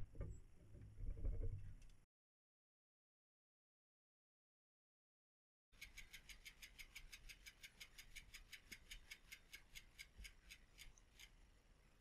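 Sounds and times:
bicycle wheel ticking: 0:05.8 - 0:11.5.

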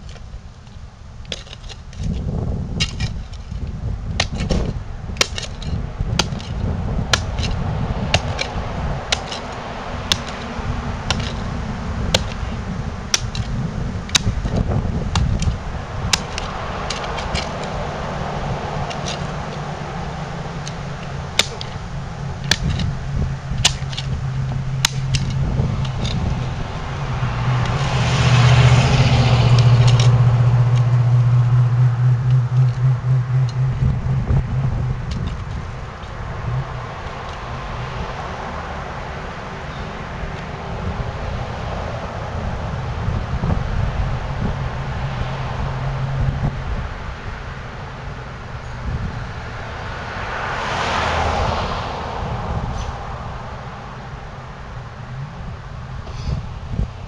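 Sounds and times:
car engine rumble: 0:00.0 - 0:57.0
sharp ticks: 0:29.5 - 0:36.2.

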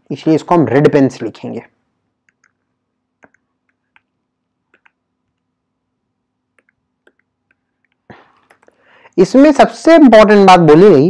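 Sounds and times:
computer mouse clicks: 0:02.2 - 0:05.5, 0:06.5 - 0:08.8.

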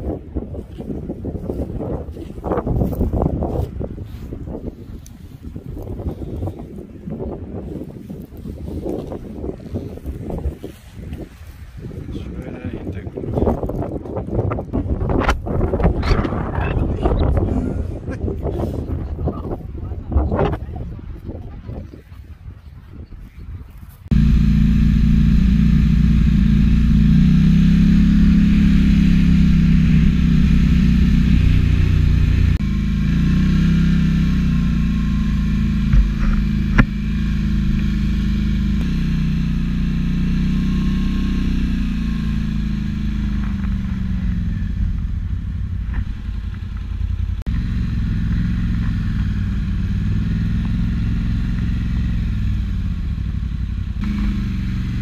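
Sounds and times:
quad bike engine: 0:24.1 - 0:55.0.

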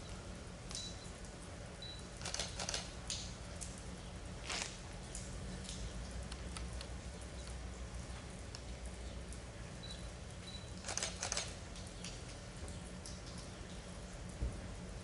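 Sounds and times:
low steady hum: 0:00.0 - 0:15.0
rain tapping on metal roof: 0:00.0 - 0:15.0.

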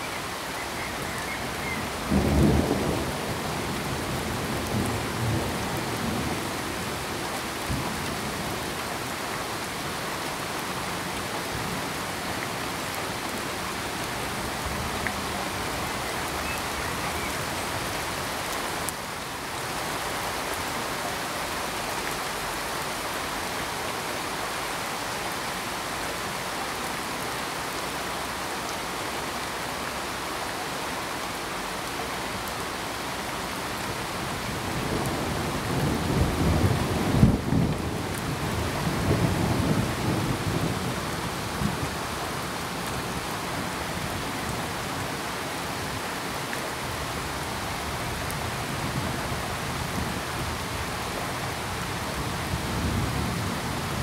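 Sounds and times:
low rumble of thunder: 0:02.0 - 0:06.4.

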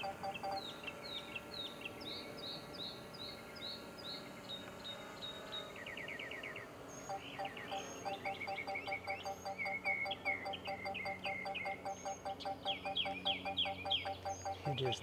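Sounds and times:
birds chirping: 0:00.0 - 0:15.0
fast bird trill: 0:07.2 - 0:15.0.

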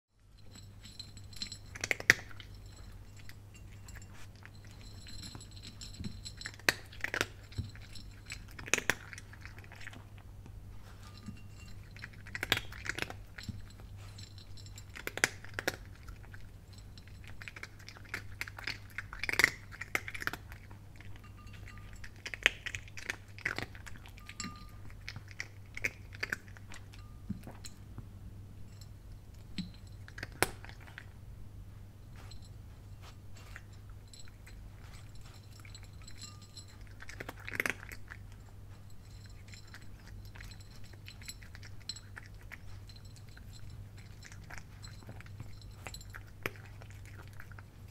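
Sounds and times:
faint low hum: 0:00.1 - 0:47.9
cat crunching dry kibble: 0:00.7 - 0:27.6, 0:29.2 - 0:31.2, 0:33.0 - 0:47.9.

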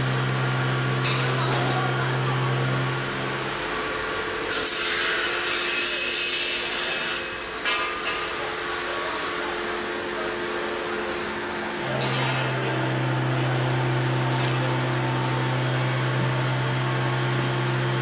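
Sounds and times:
laminator motor hum: 0:00.0 - 0:04.5, 0:07.6 - 0:18.0
machine drone: 0:08.8 - 0:18.0.

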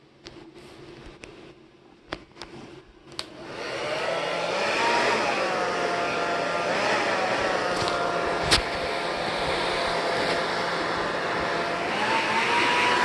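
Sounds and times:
hair dryer switch clicks: 0:03.2 - 0:03.4
hair dryer blowing: 0:03.2 - 0:13.0.

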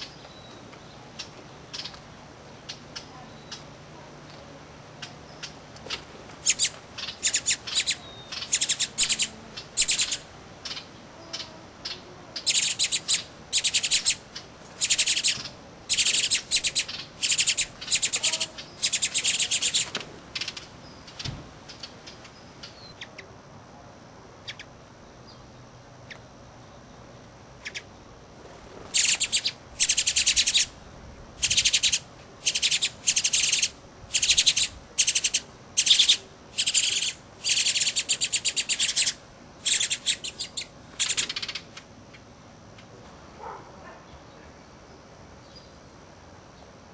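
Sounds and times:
birds chirping: 0:00.0 - 0:03.8, 0:04.9 - 0:23.3, 0:28.9 - 0:30.7, 0:31.4 - 0:42.3.

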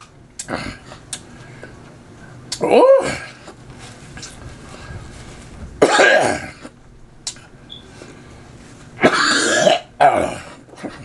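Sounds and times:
man coughing hard: 0:05.8 - 0:06.7, 0:09.0 - 0:11.0.

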